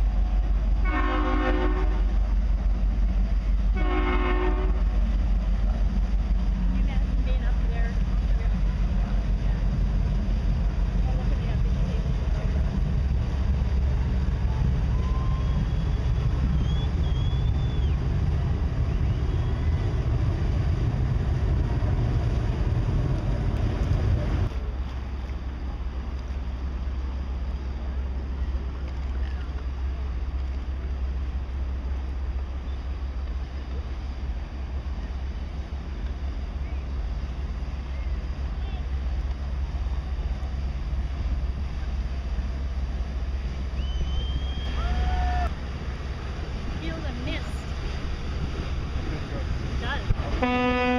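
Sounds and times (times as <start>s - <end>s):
lake water: 0.0s - 50.9s
passing boat: 0.0s - 50.9s
ship engines rumbling: 0.0s - 50.9s
high whistle: 14.9s - 18.0s, 43.7s - 45.5s.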